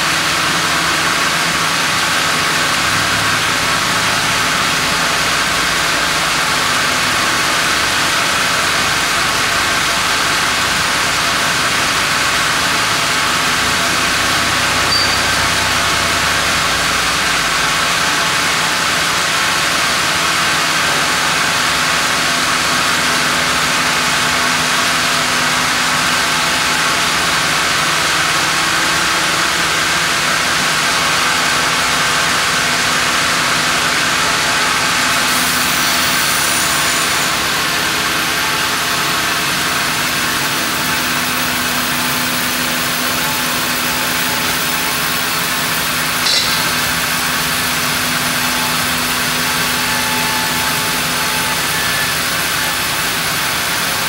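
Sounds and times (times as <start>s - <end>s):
band saw mechanical hum and hiss: 0.0s - 54.0s
short click: 46.2s - 46.9s.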